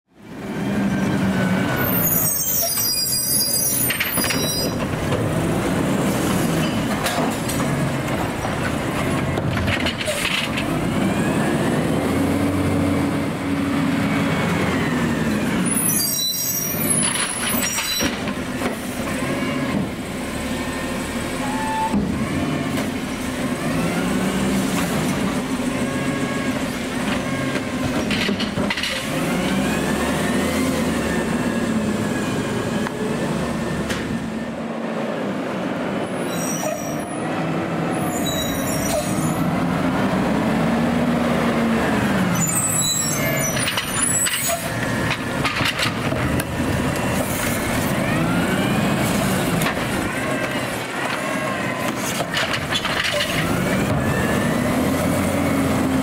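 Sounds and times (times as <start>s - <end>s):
garbage truck diesel engine revving: 5.0s - 9.4s, 10.4s - 15.8s, 22.0s - 28.0s, 28.9s - 36.0s, 39.1s - 56.0s.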